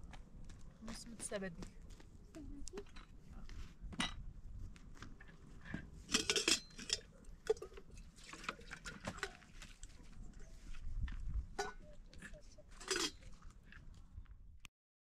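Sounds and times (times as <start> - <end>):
dishes clattering: 6.1 - 7.8, 11.6 - 13.2
kitchenware clinking: 6.1 - 7.8, 11.6 - 11.9, 12.8 - 13.2.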